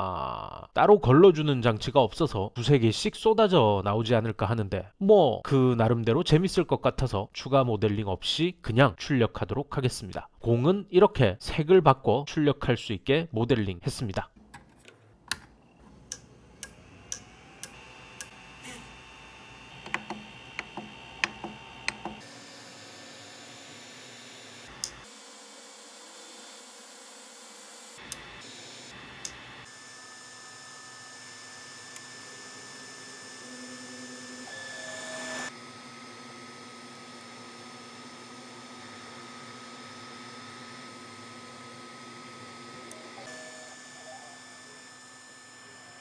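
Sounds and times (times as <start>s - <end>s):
stepper motors whining: 15.7s - 35.6s
control knob clicks: 19.8s - 22.2s
printer fan hum with whine: 31.2s - 46.0s.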